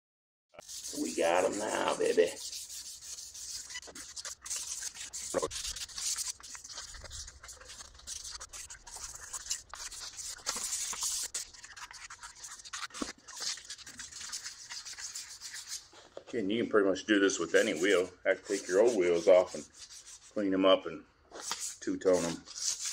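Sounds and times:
sandpaper rubbing on wheel: 0.6s - 16.0s, 17.5s - 20.4s, 21.4s - 22.9s.

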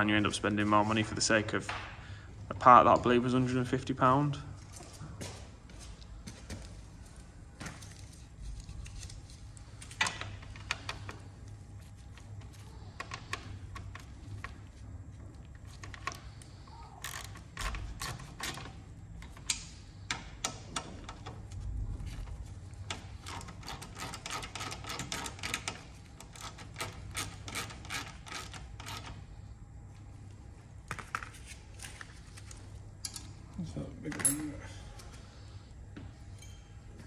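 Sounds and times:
hand ratchet clicking: 17.0s - 20.9s, 22.9s - 29.2s.

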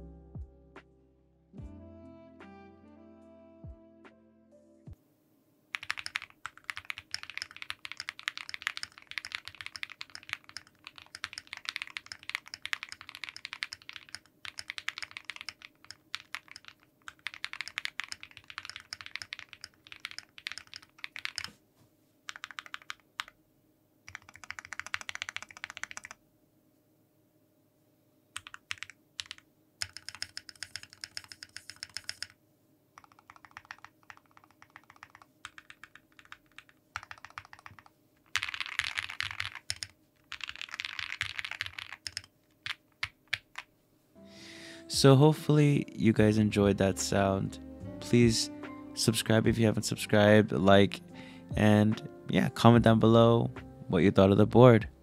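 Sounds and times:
mechanical keyboard typing: 5.7s - 21.5s, 22.3s - 23.4s, 24.1s - 26.2s, 28.4s - 32.4s, 33.0s - 43.7s.

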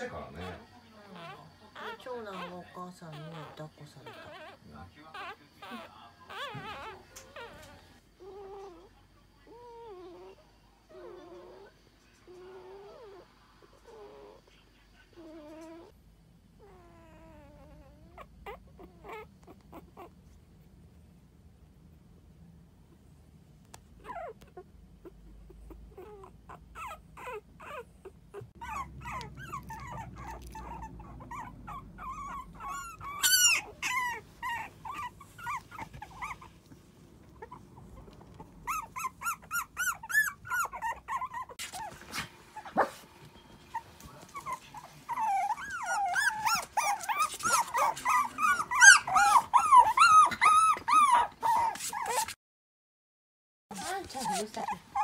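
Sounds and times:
puppies whimpering and squeaking: 0.0s - 8.9s, 16.6s - 20.2s, 24.0s - 52.4s, 53.7s - 55.0s.

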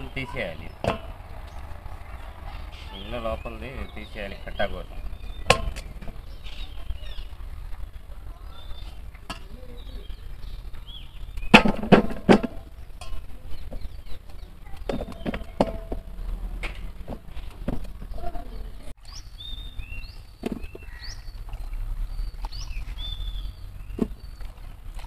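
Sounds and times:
birds chirping: 0.0s - 25.0s
sharp knocks and clatter: 0.7s - 1.8s, 5.0s - 6.4s, 11.4s - 18.2s.

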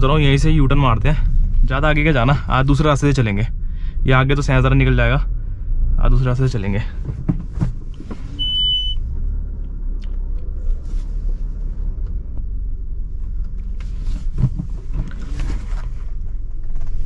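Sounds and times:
car engine rumble inside cabin: 0.0s - 17.0s
short high beep: 8.4s - 9.0s
light clicks from controls: 11.9s - 12.6s, 13.2s - 15.4s.

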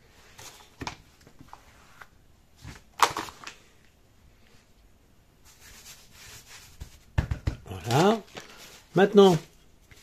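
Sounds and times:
dough taps and thumps: 6.7s - 8.0s
knock on baking mat: 6.8s - 7.7s.

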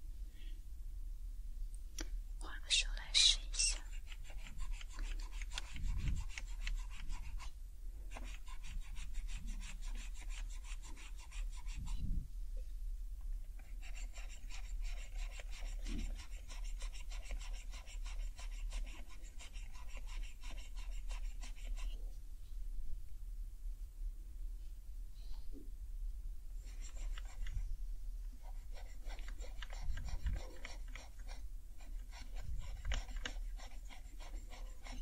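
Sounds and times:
pad scrubbing keyboard keycaps: 3.9s - 7.4s, 26.7s - 27.6s, 28.6s - 35.0s.

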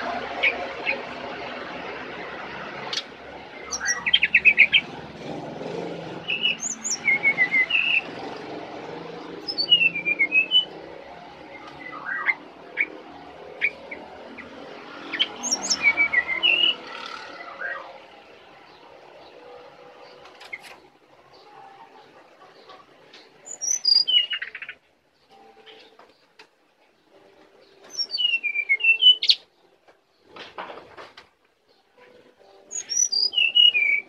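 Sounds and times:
bird chirping high notes: 3.6s - 4.9s, 6.2s - 8.1s, 9.4s - 10.8s, 15.1s - 18.0s, 23.4s - 26.0s, 27.2s - 29.7s, 31.7s - 34.0s.

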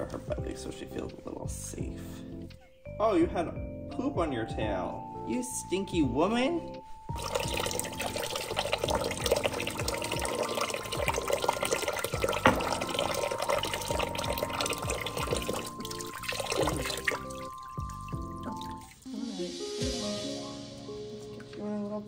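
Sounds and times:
background music: 0.0s - 22.0s
faucet pouring into water: 7.1s - 19.1s.

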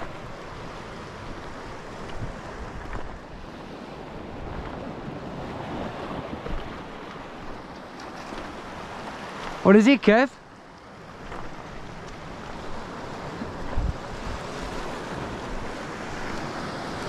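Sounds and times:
wind buffeting microphone: 0.0s - 7.7s, 11.1s - 17.0s
sea surf on rocky shore: 0.0s - 17.0s.

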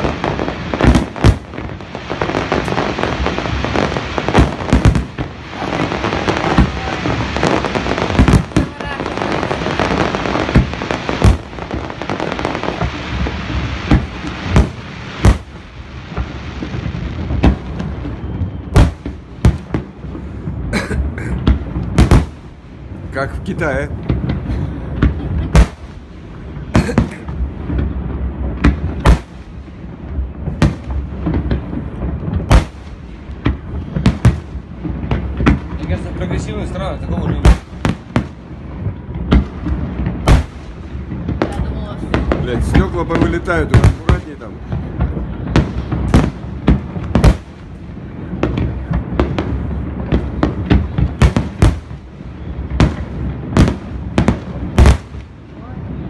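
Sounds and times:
firework shells bursting: 0.0s - 20.0s
firework bangs: 0.0s - 56.0s
low rumble of explosions: 0.0s - 56.0s.

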